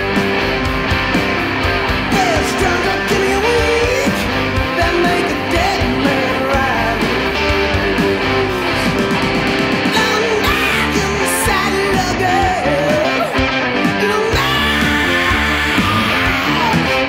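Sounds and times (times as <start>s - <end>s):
guitar-led rock music: 0.0s - 17.0s.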